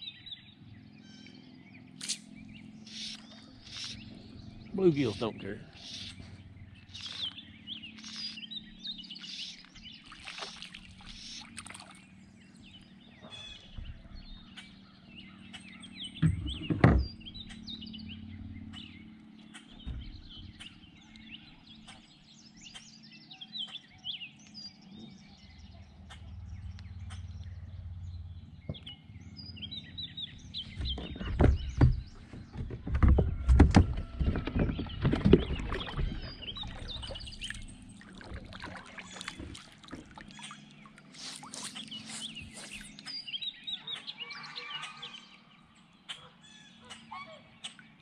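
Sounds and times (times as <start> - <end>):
birds singing and chirping: 0.0 - 48.0
water splashing: 9.2 - 12.2, 30.8 - 43.2.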